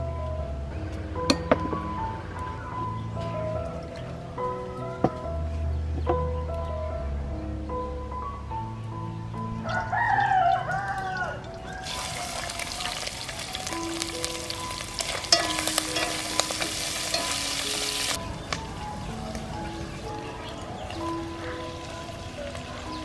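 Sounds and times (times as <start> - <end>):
soft piano music: 0.0 - 23.0
rooster crowing: 9.6 - 13.7
food sizzling in hot oil: 11.8 - 18.2.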